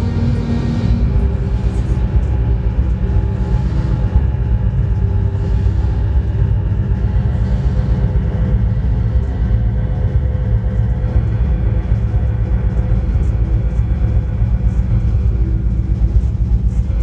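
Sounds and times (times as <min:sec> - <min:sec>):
low rumbling electronic drone: 0:00.0 - 0:17.0.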